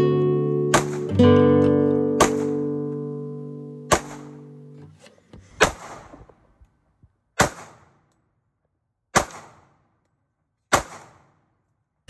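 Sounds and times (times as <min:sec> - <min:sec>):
handgun shots with echo: 0:00.7 - 0:01.0, 0:03.9 - 0:04.3, 0:07.4 - 0:08.0, 0:09.1 - 0:09.7, 0:10.7 - 0:11.3.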